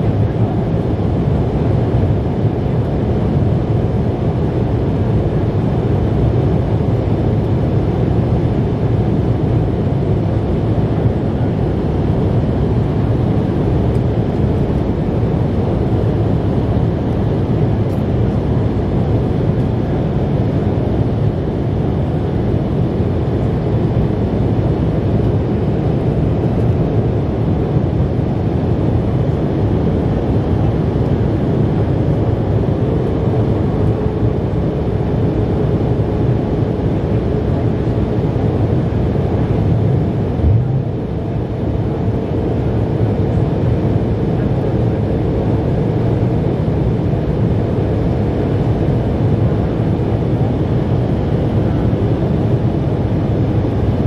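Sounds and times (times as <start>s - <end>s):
jet engines roaring: 30.2s - 44.5s
air rushing past fuselage: 39.6s - 41.3s.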